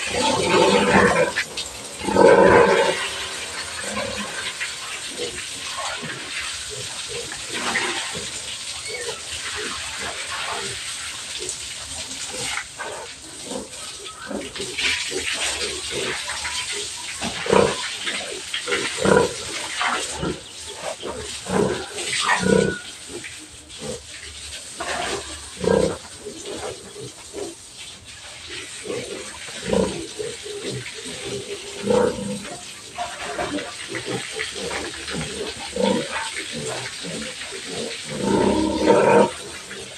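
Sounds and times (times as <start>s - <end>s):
pigs grunting: 0.0s - 10.8s, 12.2s - 27.6s, 28.4s - 39.9s
spraying water hiss: 0.0s - 39.9s.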